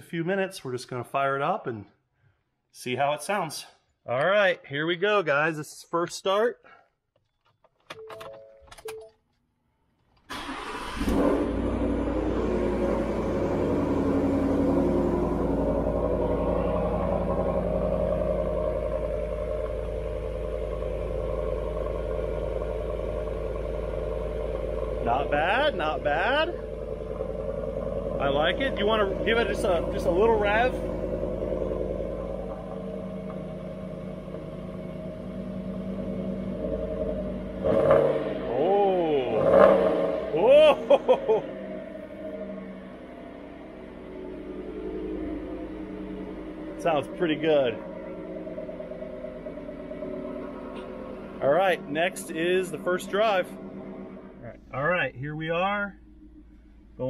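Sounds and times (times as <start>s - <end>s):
truck engine cranking and starting: 7.3s - 38.3s
truck engine idling: 10.3s - 37.6s, 40.1s - 57.0s.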